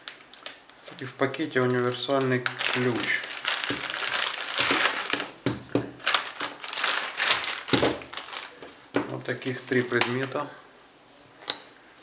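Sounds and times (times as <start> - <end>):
plastic bag crinkling: 0.0 - 10.5
metal tools clinking: 2.8 - 3.8, 4.4 - 5.2, 11.4 - 11.8.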